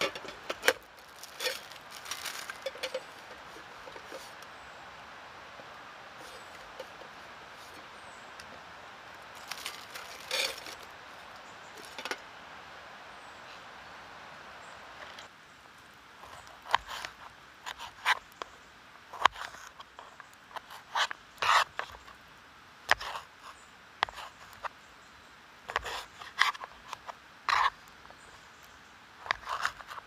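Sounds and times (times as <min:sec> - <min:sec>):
sticks scraping and rubbing: 0:00.0 - 0:04.5, 0:09.4 - 0:10.9, 0:19.1 - 0:22.0, 0:25.7 - 0:27.8, 0:29.2 - 0:30.0
steady hiss: 0:00.0 - 0:30.0.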